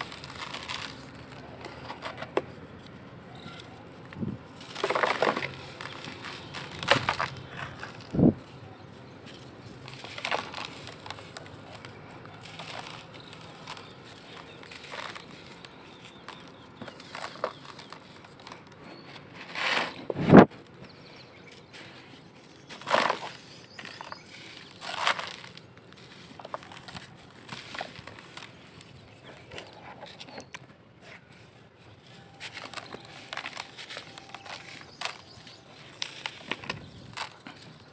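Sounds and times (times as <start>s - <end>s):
charcoal balls crunching: 0.0s - 37.9s.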